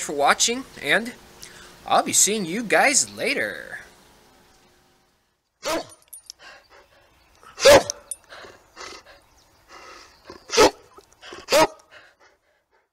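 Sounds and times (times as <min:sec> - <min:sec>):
dog barking: 0:05.6 - 0:06.0, 0:07.6 - 0:08.1, 0:10.5 - 0:10.9, 0:11.5 - 0:11.9
dog huffing: 0:06.4 - 0:12.9.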